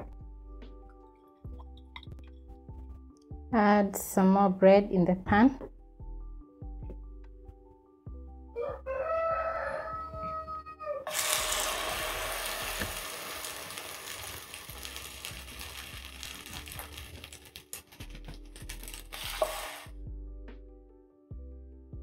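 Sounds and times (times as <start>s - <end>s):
bread sizzling in oil: 11.1s - 20.0s
small crackles and pop: 12.8s - 19.4s.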